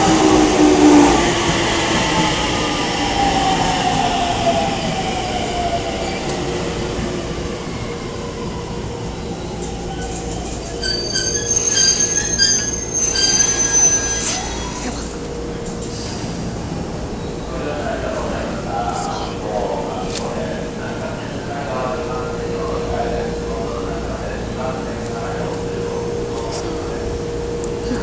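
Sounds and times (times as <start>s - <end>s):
train wheels rumbling on rails: 0.0s - 28.0s
high brake squeals: 9.9s - 15.1s.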